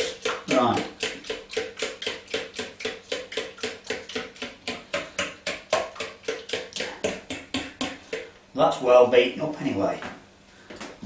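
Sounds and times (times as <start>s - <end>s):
batter beaten in bowl: 0.0s - 8.4s.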